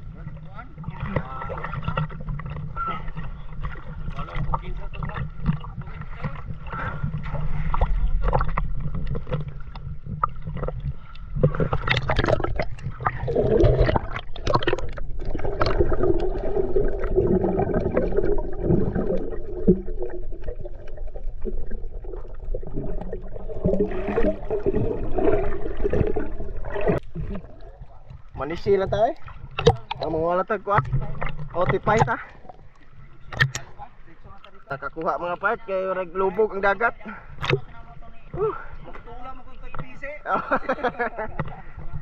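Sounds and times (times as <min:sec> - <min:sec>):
water splashing at surface: 0:00.0 - 0:35.2
underwater gurgling: 0:00.0 - 0:42.0
air bubbles rising: 0:00.8 - 0:32.6.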